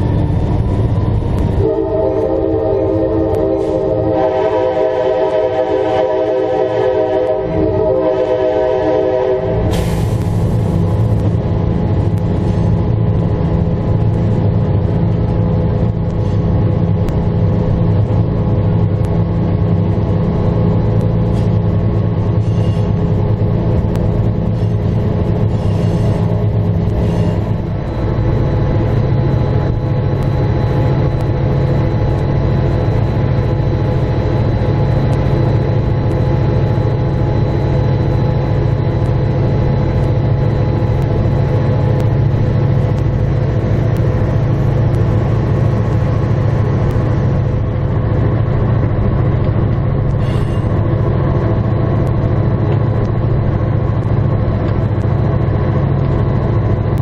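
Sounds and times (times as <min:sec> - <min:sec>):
diesel locomotive engine rumble: 0:00.0 - 0:57.0
echoing train horn: 0:01.5 - 0:09.7.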